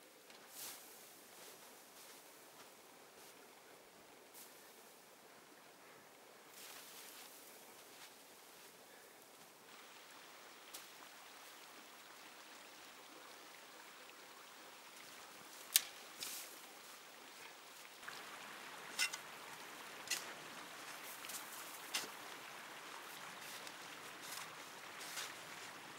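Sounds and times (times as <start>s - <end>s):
faint steady hiss: 0.0s - 25.9s
snow crunching: 6.6s - 8.8s, 16.1s - 25.9s.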